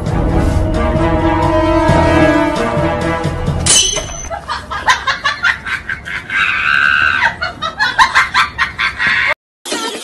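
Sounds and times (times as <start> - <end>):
person laughing hard: 4.3 - 9.4.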